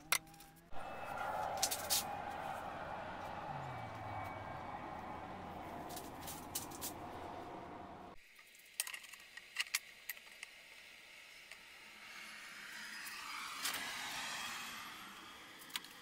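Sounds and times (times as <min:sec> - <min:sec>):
steady background hum: 0:00.8 - 0:08.2.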